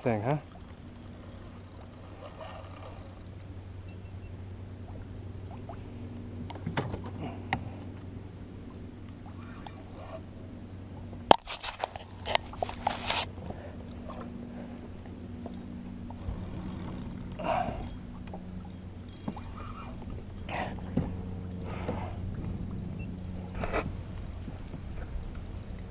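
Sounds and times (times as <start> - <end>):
low steady hum: 0.0 - 25.9
gear clicks and knocks: 15.4 - 25.9.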